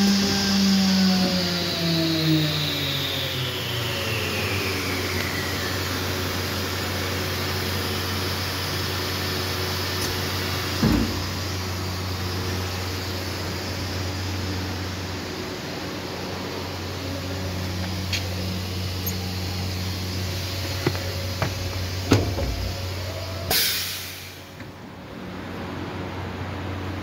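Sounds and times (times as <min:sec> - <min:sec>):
machine motors winding down: 0:00.0 - 0:24.6
low machine hum: 0:00.0 - 0:27.0
thump: 0:10.8 - 0:11.3, 0:21.4 - 0:22.7.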